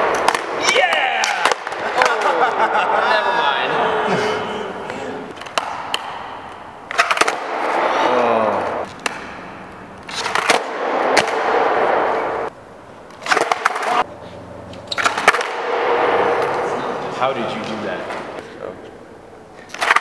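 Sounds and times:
skateboard pops and landings: 0:06.9 - 0:07.9, 0:10.1 - 0:12.2, 0:13.2 - 0:14.0, 0:15.0 - 0:16.0.

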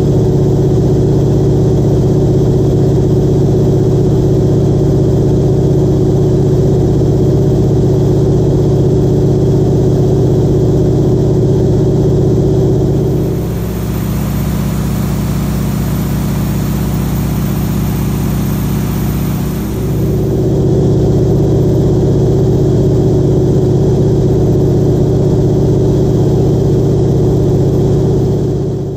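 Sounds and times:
propeller engine droning: 0:11.8 - 0:28.9.

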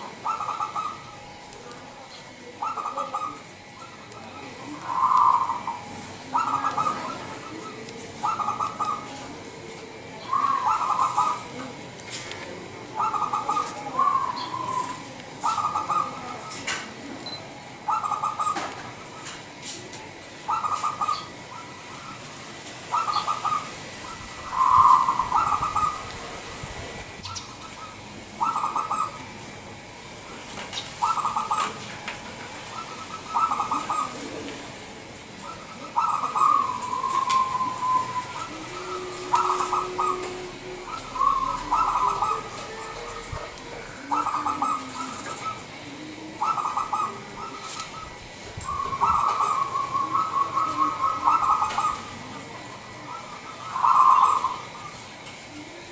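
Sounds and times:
dove cooing: 0:00.0 - 0:55.9.

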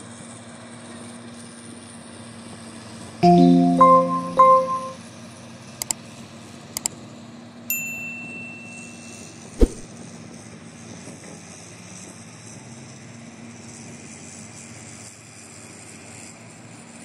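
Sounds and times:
notification bell ding: 0:03.2 - 0:05.0
sharp thump: 0:09.6 - 0:09.8.

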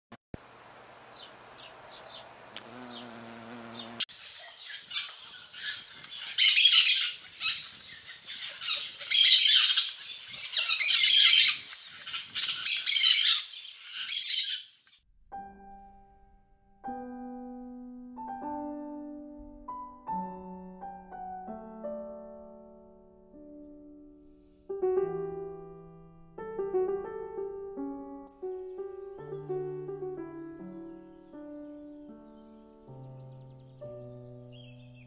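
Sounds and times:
songbird trilling: 0:01.1 - 0:14.7.

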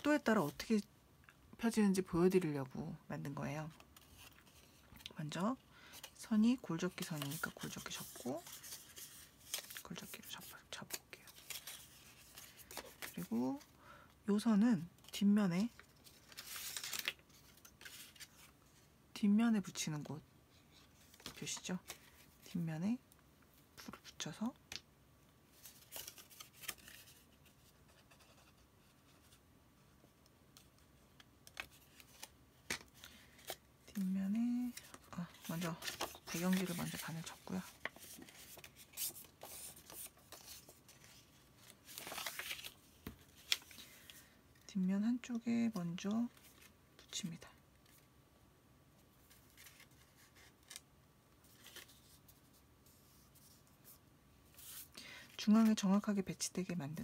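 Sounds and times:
paper rustling and rubbing: 0:07.0 - 0:10.6, 0:25.5 - 0:29.4, 0:34.6 - 0:44.1.

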